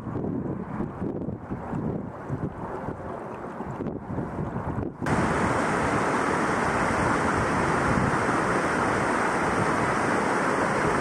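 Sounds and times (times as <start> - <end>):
waterfall rushing: 5.1 - 11.0.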